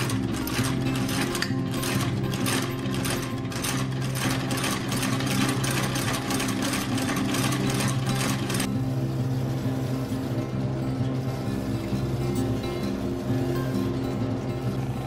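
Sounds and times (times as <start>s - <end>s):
stitching machine clacking: 0.0s - 8.7s.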